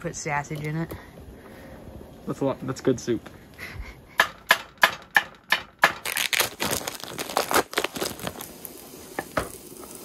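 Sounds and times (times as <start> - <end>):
sharp knocks: 4.1 - 6.1
plastic packaging crinkling: 6.0 - 10.0.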